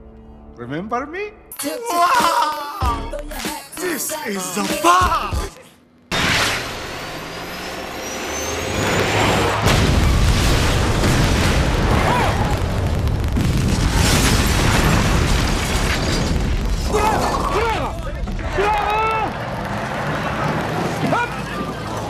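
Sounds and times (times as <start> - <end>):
thin rising whine: 6.1 - 10.4
large explosion with rumble: 9.6 - 18.6.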